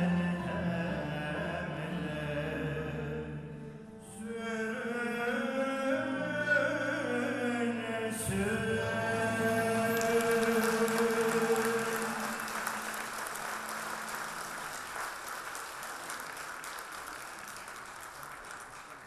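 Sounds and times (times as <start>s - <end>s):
choir and ensemble chord: 8.2s - 14.2s
audience applauding: 9.6s - 19.0s.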